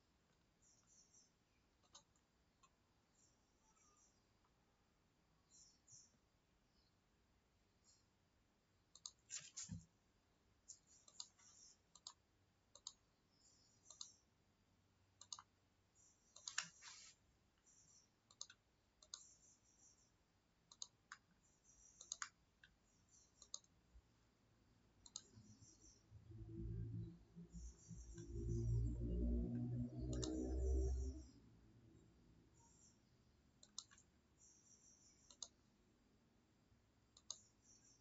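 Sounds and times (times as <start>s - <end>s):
computer mouse clicking: 0.3s - 4.2s, 8.9s - 9.9s, 10.6s - 14.3s, 15.2s - 23.8s, 25.0s - 26.0s, 27.6s - 28.6s, 30.0s - 31.4s, 32.6s - 35.7s, 37.1s - 38.0s.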